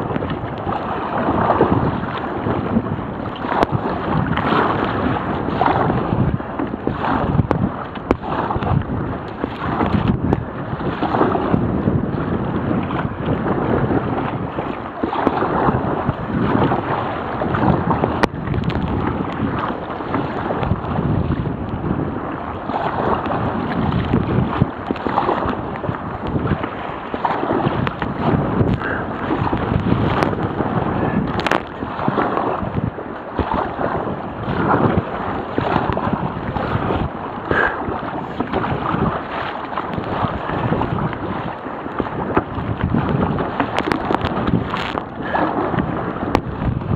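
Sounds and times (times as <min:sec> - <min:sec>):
water sloshing and splashing: 0:00.0 - 0:46.9
wind buffeting microphone: 0:00.0 - 0:46.9.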